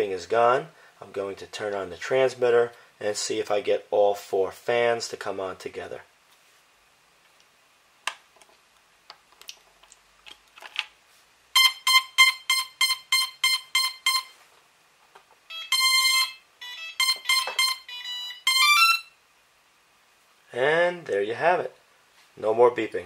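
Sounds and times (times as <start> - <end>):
quadcopter power-up beeps: 15.5 - 19.1.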